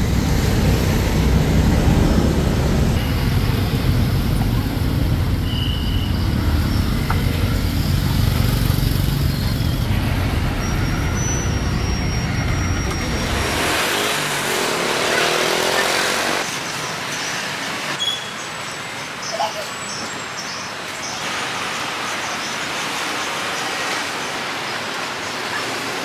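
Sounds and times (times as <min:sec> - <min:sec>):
street traffic rumble: 0:00.0 - 0:26.0.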